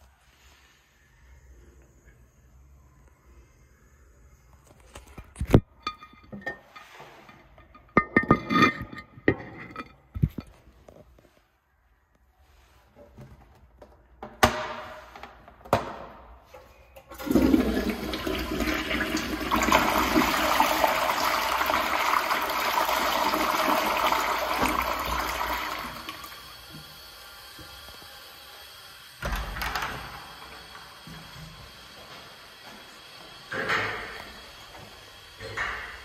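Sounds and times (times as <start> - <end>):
toilet flushing: 17.0 - 36.0.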